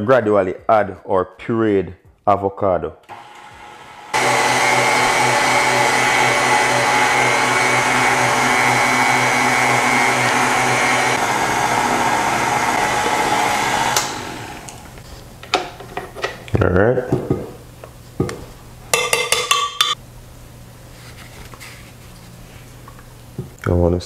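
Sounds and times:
stand mixer motor humming: 3.1 - 15.0.

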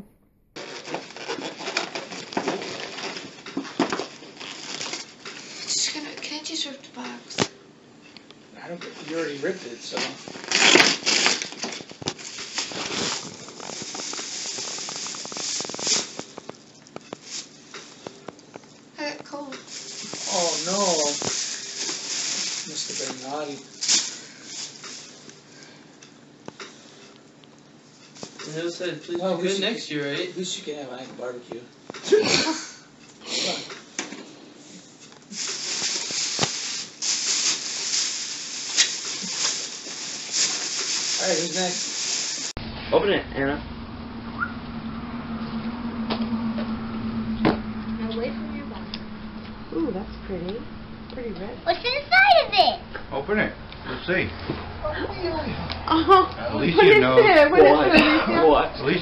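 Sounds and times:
paper rustling and crinkling: 0.6 - 5.5, 9.0 - 18.2, 19.8 - 25.1, 35.4 - 42.5.

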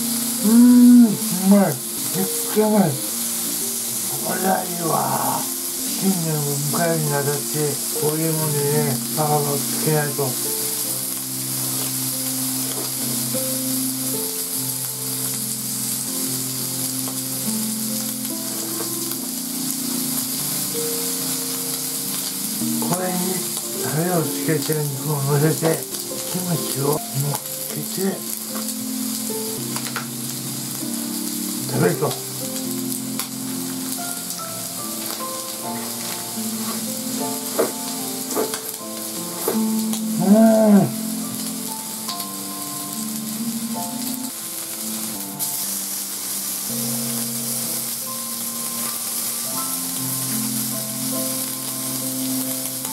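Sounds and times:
background music held notes: 0.0 - 52.9
meat sizzling on griddle: 0.0 - 52.9
person humming mmm: 0.3 - 2.4, 4.0 - 6.8, 39.4 - 41.2.

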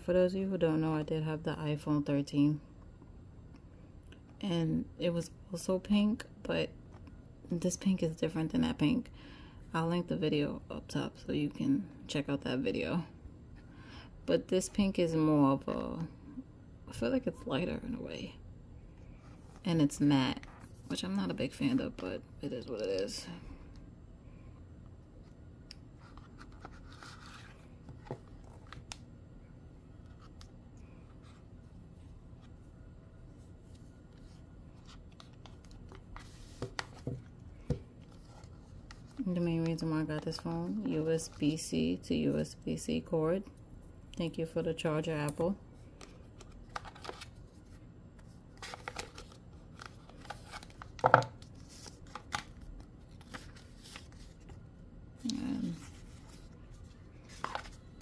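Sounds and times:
rustling and scraping packaging: 26.0 - 28.8, 33.6 - 37.3, 46.0 - 54.6, 55.4 - 58.0.

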